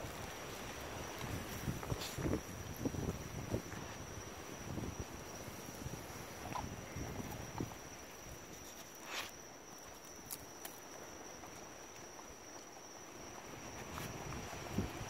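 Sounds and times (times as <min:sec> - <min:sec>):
crickets chirring: 0:00.0 - 0:15.0
rustle of stalks: 0:00.0 - 0:15.0.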